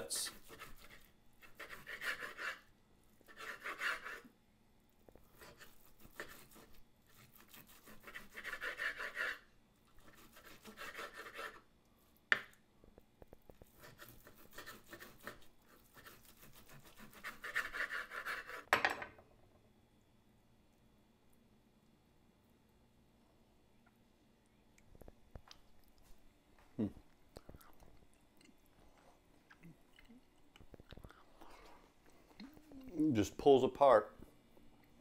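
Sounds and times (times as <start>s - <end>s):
knife sawing through steak: 0.1s - 4.2s, 5.3s - 9.4s, 10.0s - 11.6s, 13.7s - 18.7s
knife rasping on wooden board: 0.2s - 2.7s, 3.3s - 4.2s, 5.3s - 9.4s, 10.0s - 11.6s, 13.7s - 18.7s.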